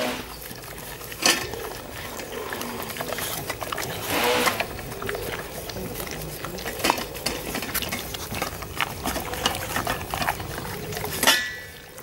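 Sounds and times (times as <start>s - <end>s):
dog licking: 0.0s - 12.0s.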